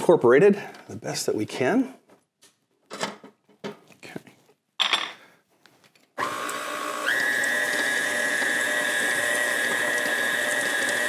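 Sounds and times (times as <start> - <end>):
stand mixer motor whine: 6.2 - 11.0.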